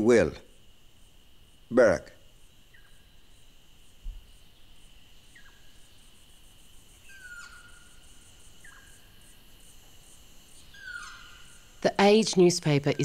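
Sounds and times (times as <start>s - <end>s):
cricket-like chirping: 0.0s - 13.0s
high insect drone: 0.0s - 13.0s
bird whistled calls: 7.0s - 7.9s, 10.7s - 11.6s.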